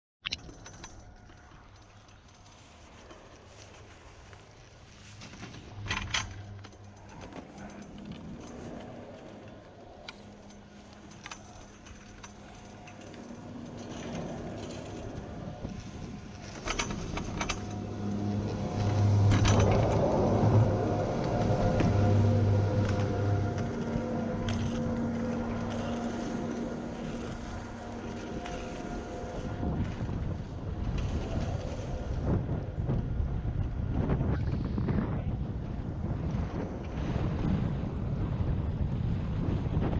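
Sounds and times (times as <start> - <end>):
wind buffeting microphone: 1.6 - 39.9
skis scraping over snow: 2.5 - 34.0
faint low hum: 3.8 - 39.9.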